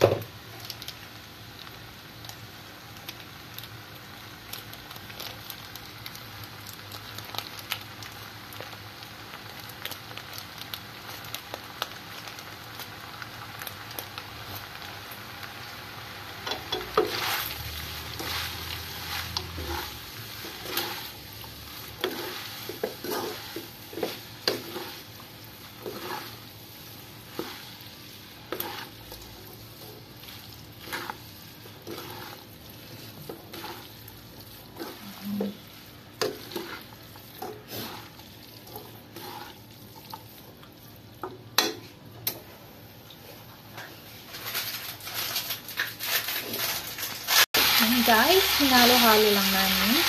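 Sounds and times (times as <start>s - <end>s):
faint sizzle: 0.0s - 50.0s
utensils scraping and knocking pan: 18.2s - 21.1s, 22.0s - 25.0s, 31.8s - 32.4s, 44.3s - 47.7s.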